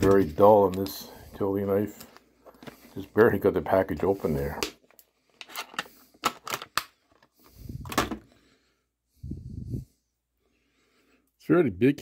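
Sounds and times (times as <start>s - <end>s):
plastic packaging crackling: 0.0s - 3.5s.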